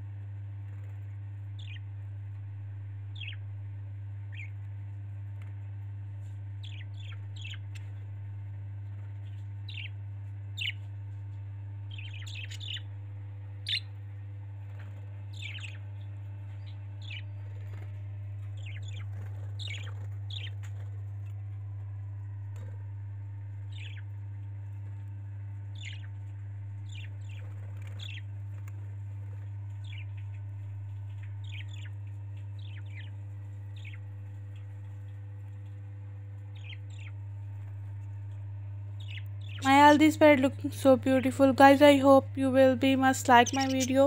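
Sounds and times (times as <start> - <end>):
steady low hum: 0.0 - 44.0
budgerigars chirping: 3.2 - 3.4, 11.9 - 12.8, 13.7 - 13.9, 15.4 - 15.9, 16.6 - 17.8, 18.6 - 20.6, 23.7 - 24.0, 25.8 - 26.1, 26.9 - 28.2, 31.4 - 32.0, 32.6 - 33.2, 36.6 - 37.2, 39.0 - 40.0, 43.0 - 44.0.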